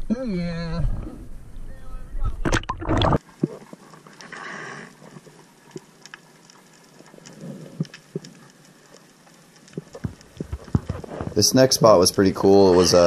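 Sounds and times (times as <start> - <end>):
faint underwater hiss: 3.2 - 10.3.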